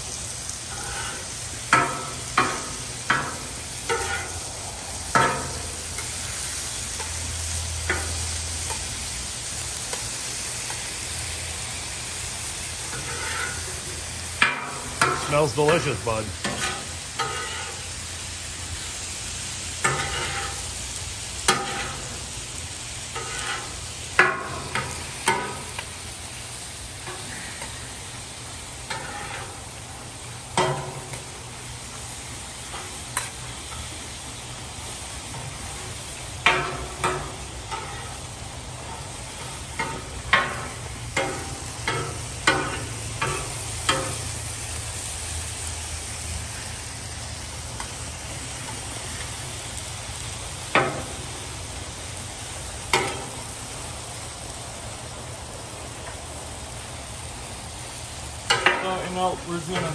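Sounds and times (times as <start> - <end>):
meat sizzling on griddle: 0.0 - 59.9
metal spatula scraping griddle: 0.7 - 4.5, 5.1 - 7.2, 12.8 - 17.9, 19.8 - 20.7, 21.4 - 22.3, 23.1 - 25.7, 28.9 - 29.7, 36.4 - 44.2.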